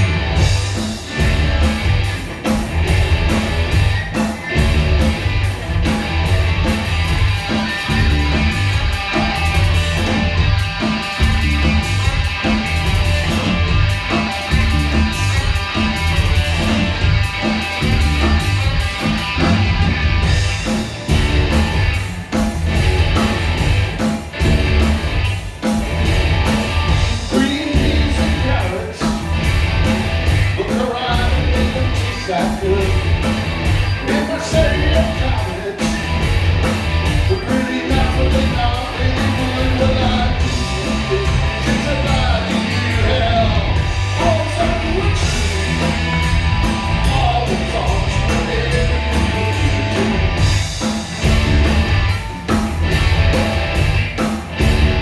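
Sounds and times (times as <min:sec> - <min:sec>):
rock band playing live: 0:00.0 - 0:55.0
man singing lead vocal: 0:27.0 - 0:29.2, 0:30.5 - 0:33.1, 0:34.0 - 0:36.0, 0:37.3 - 0:46.2, 0:46.9 - 0:50.3.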